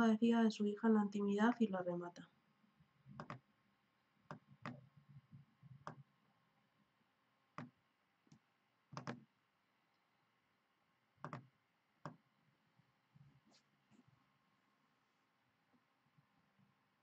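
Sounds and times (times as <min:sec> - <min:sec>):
computer mouse clicking: 0:03.2 - 0:03.4, 0:08.3 - 0:09.2, 0:11.2 - 0:12.2.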